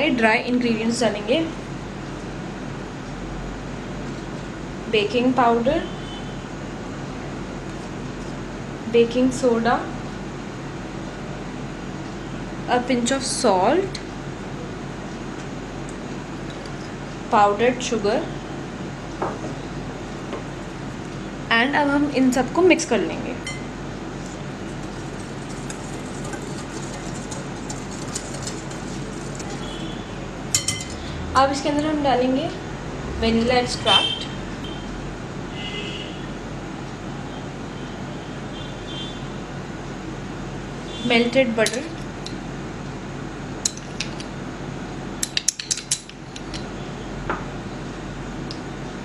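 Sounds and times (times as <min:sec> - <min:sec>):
steady low hum: 0:00.0 - 0:49.0
whisk scraping in glass bowl: 0:24.7 - 0:30.0
spoon clinking on glass bowl: 0:30.6 - 0:31.0.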